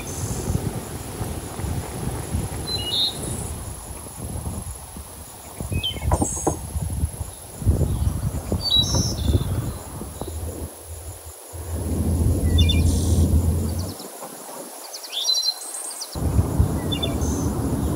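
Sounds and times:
high insect whine: 0.0s - 17.9s
low rumbling noise: 7.6s - 14.1s, 16.2s - 17.9s.

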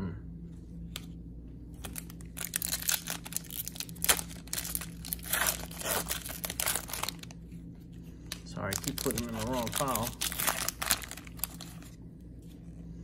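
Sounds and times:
foil wrapper tearing and crinkling: 1.8s - 7.4s, 8.3s - 12.0s.

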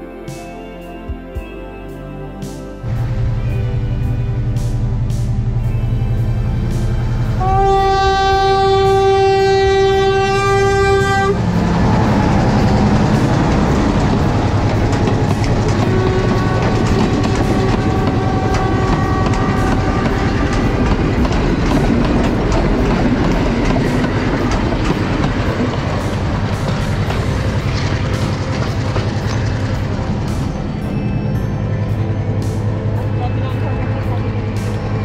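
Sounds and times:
train rumbling past: 2.8s - 35.0s
train horn blast: 2.9s - 30.4s
wheels clattering over rail joints: 11.5s - 30.9s.

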